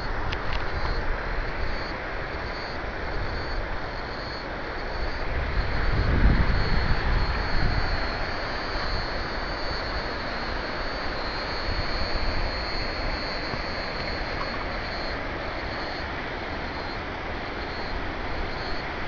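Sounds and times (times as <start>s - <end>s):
thin high buzz: 1.6s - 18.9s
wind buffeting microphone: 4.9s - 9.5s.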